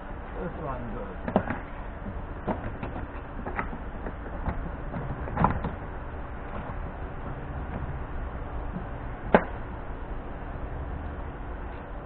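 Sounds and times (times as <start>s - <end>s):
steady low hum: 0.0s - 12.0s
plastic panel clicks and knocks: 1.3s - 1.6s.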